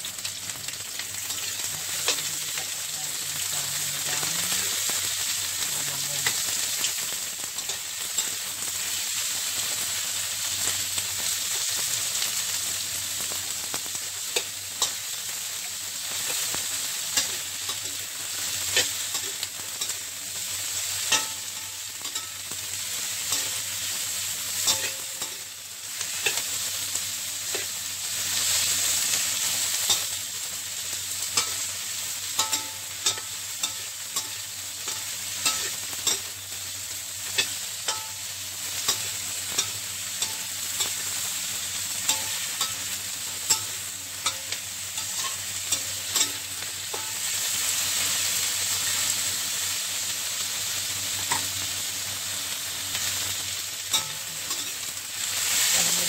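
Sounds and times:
onions sizzling in hot oil: 0.0 - 56.0
spatula scraping a wok: 13.2 - 50.1, 52.6 - 56.0.

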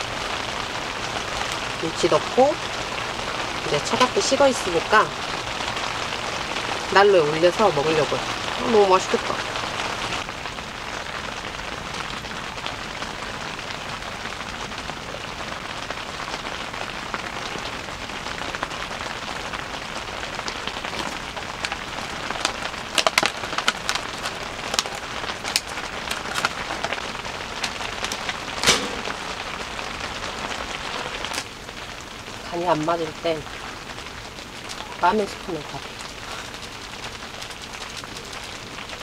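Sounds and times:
rain pattering on tent: 0.0 - 39.0
aluminium foil crinkling: 20.4 - 31.5, 33.6 - 39.0.

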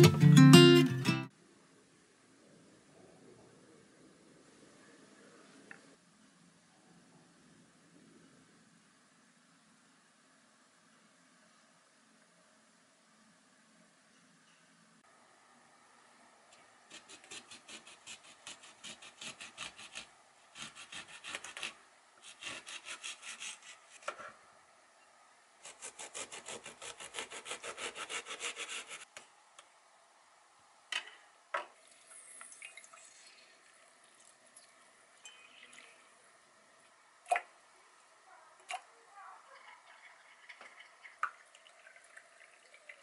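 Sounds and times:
knife sawing through lemon: 16.9 - 24.2, 25.6 - 29.1.

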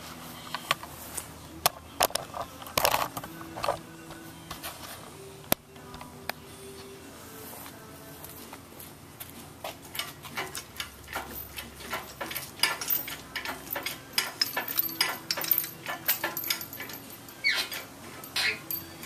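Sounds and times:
steel chain rattling and clinking: 9.8 - 19.0
sharp metal clicks: 9.9 - 19.0.

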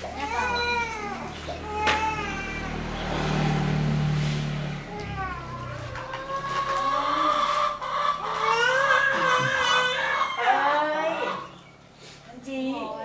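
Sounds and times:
young child crying: 4.8 - 6.0.

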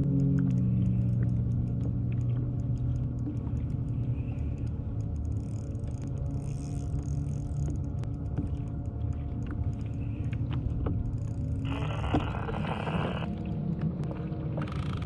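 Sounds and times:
fishing reel rumbling: 0.0 - 13.5, 14.6 - 15.0
fishing reel clicks: 2.6 - 8.3, 11.0 - 11.8.

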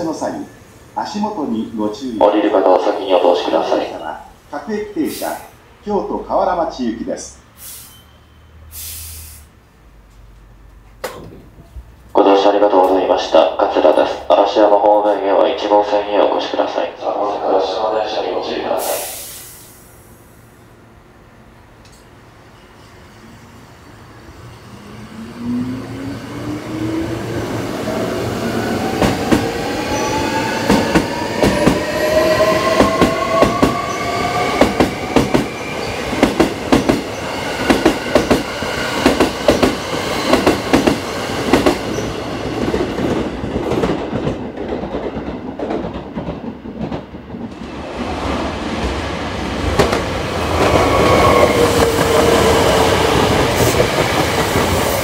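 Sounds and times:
train wheels clicking over rail joints: 34.6 - 47.8.

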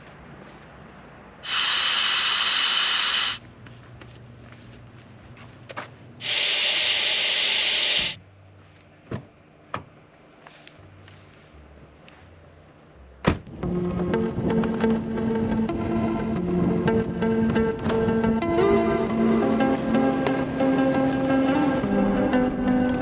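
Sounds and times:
air hissing from tyre valve: 1.4 - 3.4, 6.2 - 8.2.

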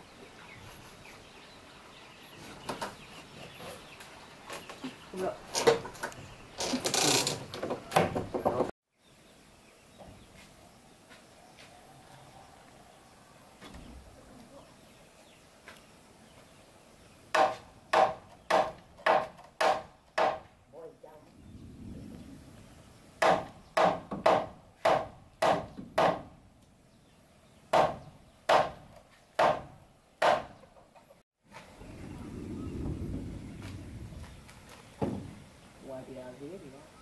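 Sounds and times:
tool knocking on wood: 17.4 - 20.5, 23.2 - 26.3, 35.0 - 35.4.

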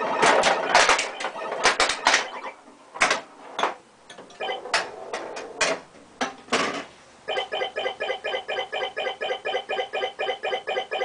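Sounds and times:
pinball machine mechanical clacks: 0.0 - 3.2, 4.1 - 5.8.

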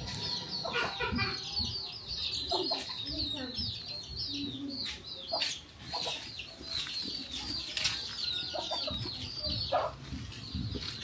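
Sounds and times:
bird clucking calls: 0.0 - 7.7
birds chirping: 0.0 - 11.0.

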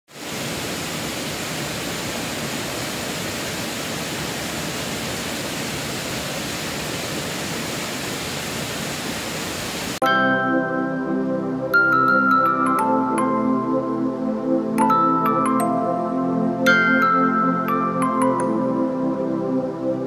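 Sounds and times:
waterfall rushing: 0.1 - 10.0.

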